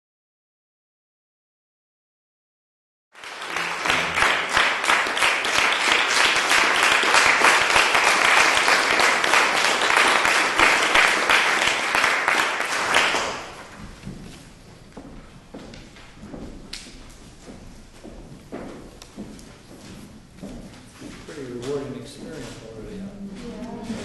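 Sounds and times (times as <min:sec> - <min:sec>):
audience applause: 0:03.2 - 0:13.8.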